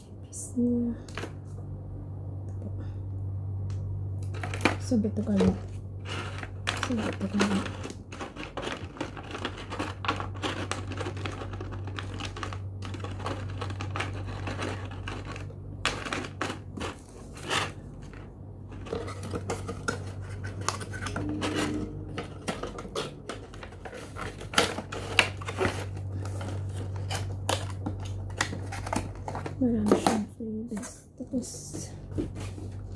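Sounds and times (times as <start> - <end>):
low steady hum: 0.0 - 32.9
packaging rustling and crinkling: 4.2 - 30.0.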